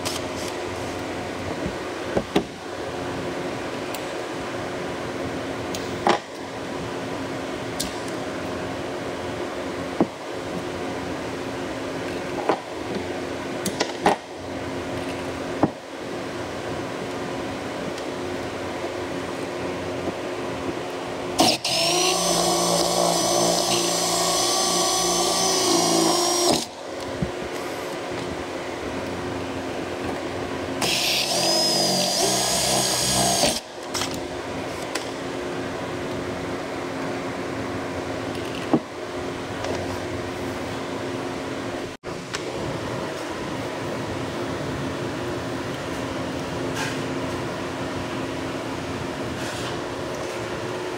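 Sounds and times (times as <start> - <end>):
steady background hum: 0.0 - 50.9
cordless drill whining: 21.4 - 26.7, 30.8 - 33.6.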